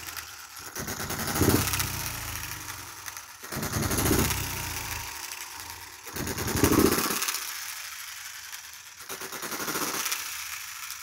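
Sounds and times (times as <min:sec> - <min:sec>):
engine firing bursts: 0:00.0 - 0:11.0
model engine ticking: 0:00.0 - 0:11.0.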